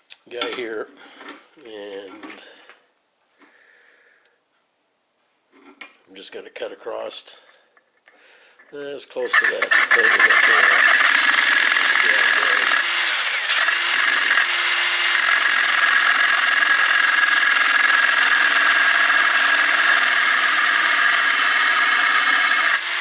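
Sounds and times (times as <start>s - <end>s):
drill grinding with cutting wheel: 9.1s - 23.0s.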